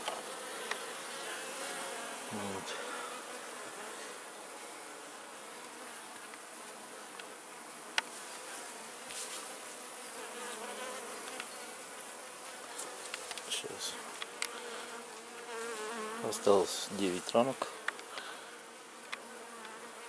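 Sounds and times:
honeybees buzzing: 0.0 - 20.0.

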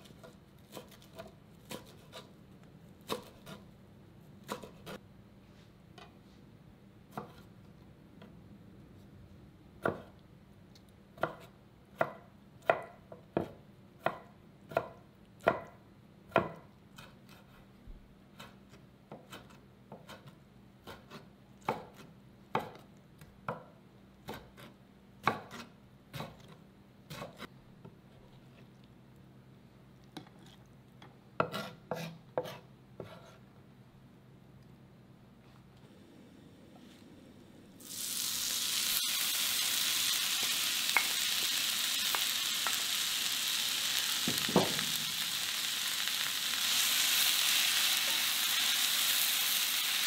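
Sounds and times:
knife chopping on wooden board: 3.0 - 3.6, 9.8 - 10.1, 11.2 - 15.7, 16.3 - 17.5, 23.5 - 27.5, 31.4 - 33.4.

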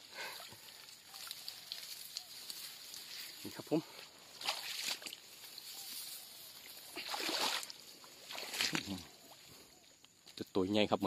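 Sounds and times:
splashing in shallow water: 4.3 - 5.7, 6.6 - 9.5.

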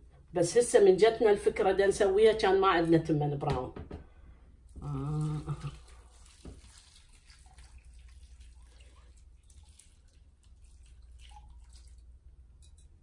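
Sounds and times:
water trickling and splashing: 4.8 - 12.9.

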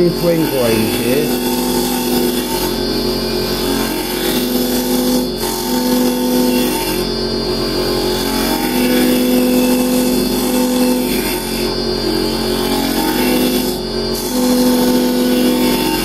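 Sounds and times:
lathe chisel cutting wood: 0.0 - 7.2, 12.7 - 16.0.

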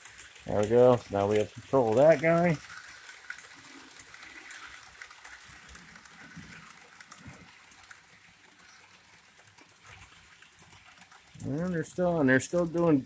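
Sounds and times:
model trains rattling on track: 0.0 - 13.0.

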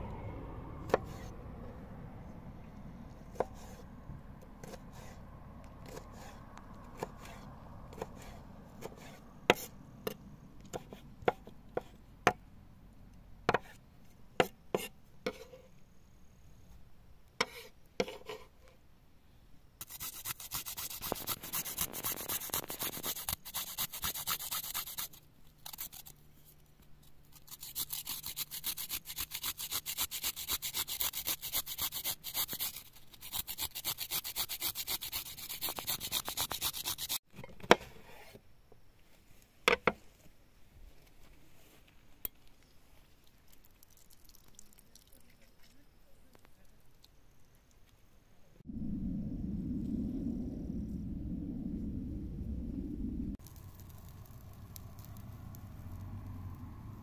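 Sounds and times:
hand grater rasping: 27.4 - 37.2.

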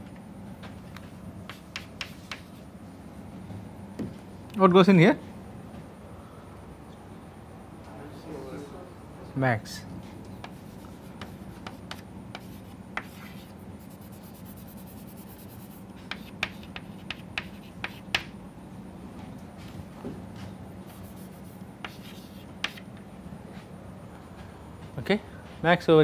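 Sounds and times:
steady low hum: 0.0 - 26.0
chalk tapping on chalkboard: 1.4 - 2.6, 10.4 - 18.3, 20.8 - 22.9
chalk scratching strokes: 1.5 - 2.7, 10.4 - 18.3, 20.8 - 22.8.

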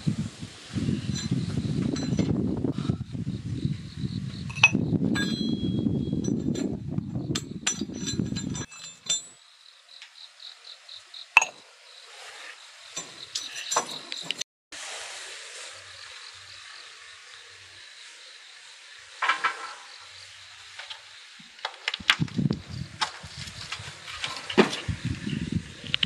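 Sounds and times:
insect chirping in pulses: 0.2 - 7.7, 8.6 - 24.1
glassy pings from cooling pots: 4.5 - 6.6, 11.3 - 11.6.

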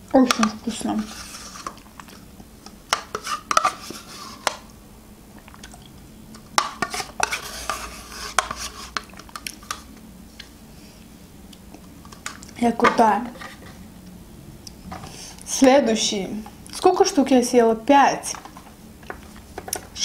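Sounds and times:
spoon scraping plastic cup: 0.3 - 1.8, 3.0 - 4.6, 6.7 - 9.8, 13.3 - 13.8.

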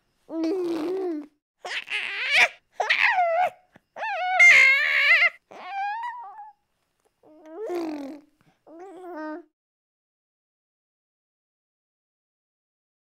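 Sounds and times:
high-pitched wavering vocal cries: 0.3 - 6.6.

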